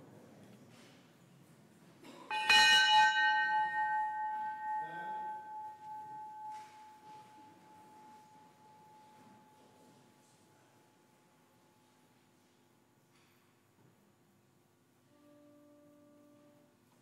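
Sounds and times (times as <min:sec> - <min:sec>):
bell ringing: 0:02.3 - 0:09.6.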